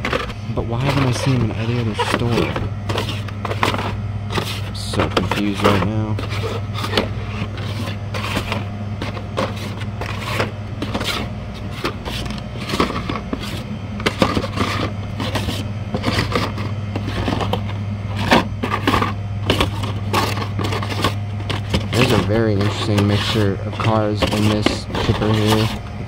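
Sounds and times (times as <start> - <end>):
plastic and cardboard clicks and scrapes: 0.0 - 25.8
steady low hum: 0.0 - 26.0.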